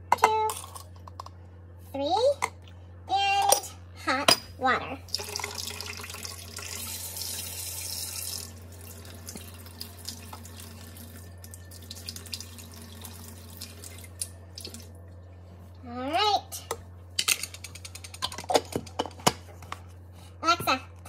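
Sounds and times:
hot water pouring: 5.1s - 14.1s.

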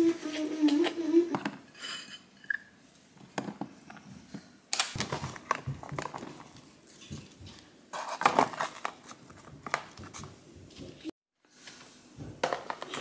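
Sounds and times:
plastic containers clicking and knocking: 4.8s - 7.3s.

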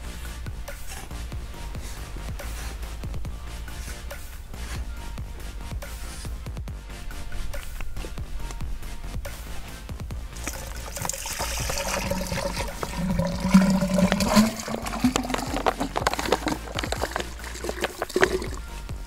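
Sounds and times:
bottle glugging: 10.4s - 18.7s
liquid splashing and gurgling: 10.4s - 18.8s.

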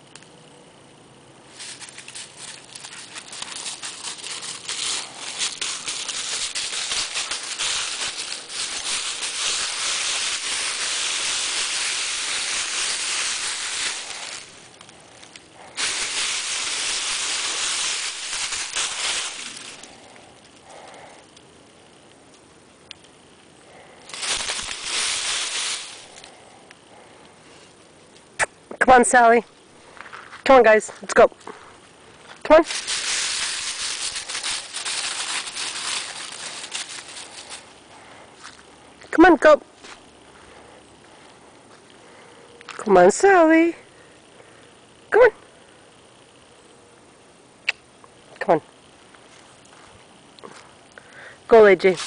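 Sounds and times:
dry leaves crunching: 1.5s - 20.9s, 23.7s - 26.5s, 29.8s - 39.1s, 51.6s - 52.0s.

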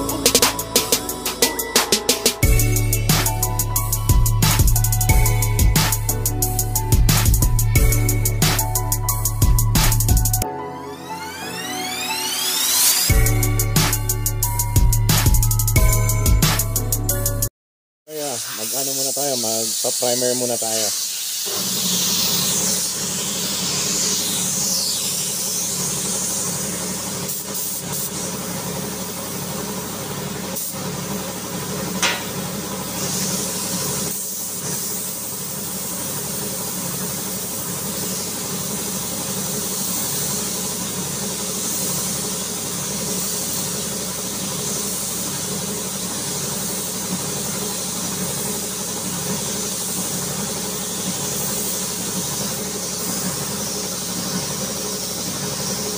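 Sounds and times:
paint spray gun hissing: 0.0s - 10.4s, 18.1s - 55.9s
steady mechanical hum: 21.4s - 55.9s.

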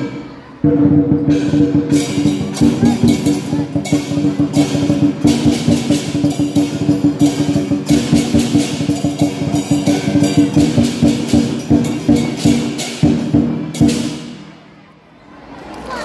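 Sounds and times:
drum beating fast rhythm: 0.0s - 14.6s
cymbals clashing: 0.0s - 14.8s.

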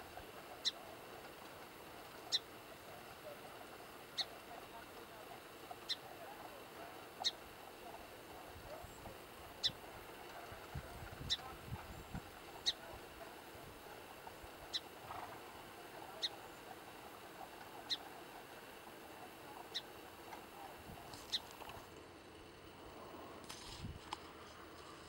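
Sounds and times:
sparrow chip call: 0.6s - 0.8s, 2.3s - 2.5s, 4.2s - 4.4s, 5.8s - 6.1s, 7.2s - 7.4s, 11.2s - 12.9s, 14.6s - 15.0s, 16.1s - 16.6s, 17.8s - 18.1s, 19.6s - 20.0s, 21.2s - 21.5s.

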